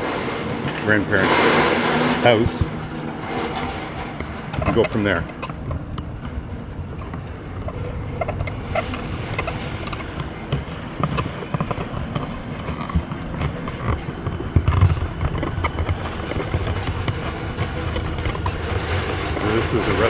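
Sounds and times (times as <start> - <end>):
bicycle rattling: 0.0 - 20.0
bicycle tyres rumbling on bricks: 0.0 - 20.0.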